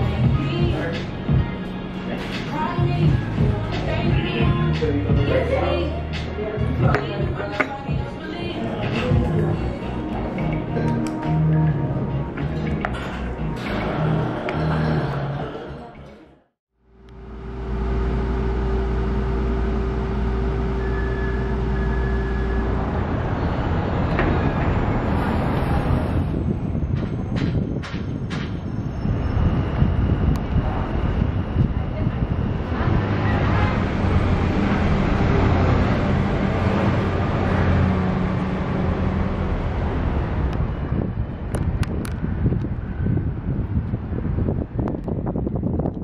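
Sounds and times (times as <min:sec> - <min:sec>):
street traffic noise: 0:00.0 - 0:46.0
low engine rumble: 0:16.8 - 0:46.0.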